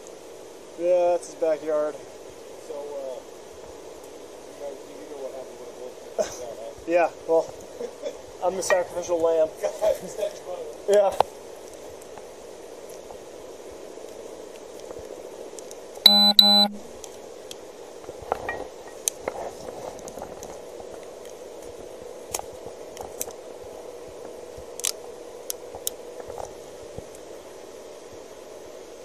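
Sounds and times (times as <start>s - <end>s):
steady background hum: 0.0s - 29.0s
buzzy electronic beeps: 16.1s - 16.8s.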